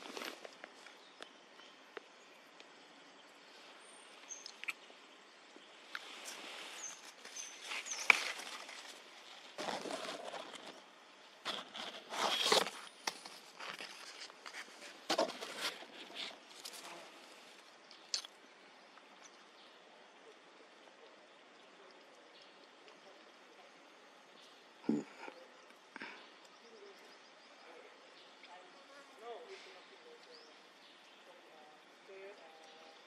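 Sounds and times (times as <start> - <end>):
rustling in dry grass: 6.0 - 17.7.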